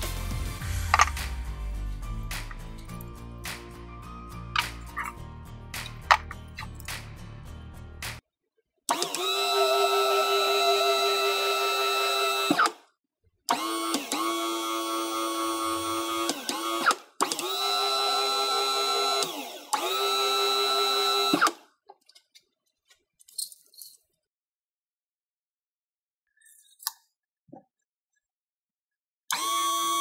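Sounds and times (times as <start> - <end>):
hydraulic pump motor whining: 0.8 - 1.4, 8.9 - 12.8, 13.5 - 21.6, 29.3 - 30.0.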